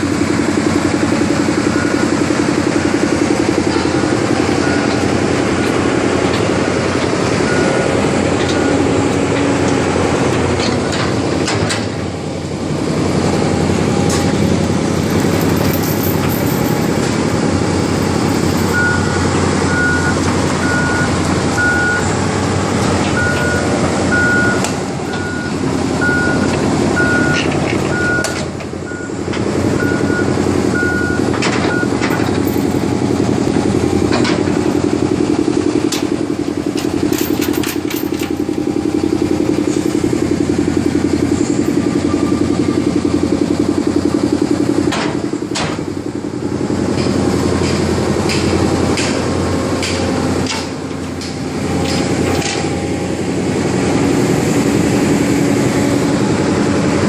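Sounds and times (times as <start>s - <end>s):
excavator diesel engine running: 0.0s - 57.0s
travel alarm beeping: 1.6s - 2.3s, 18.6s - 22.2s, 23.1s - 32.1s.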